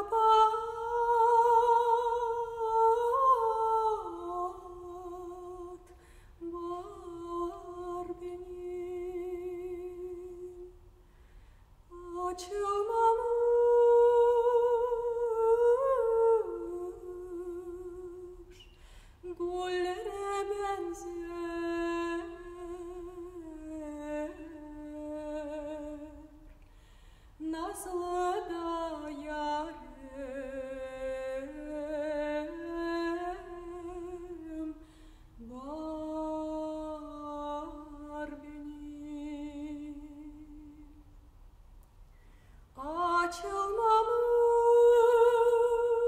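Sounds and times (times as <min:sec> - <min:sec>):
woman singing and humming: 0:00.0 - 0:10.9, 0:11.9 - 0:26.7, 0:27.4 - 0:41.2, 0:42.7 - 0:46.0
woman breathing: 0:05.9 - 0:06.4, 0:11.0 - 0:11.9, 0:18.6 - 0:19.2, 0:26.6 - 0:27.4, 0:34.8 - 0:35.4, 0:42.1 - 0:42.7.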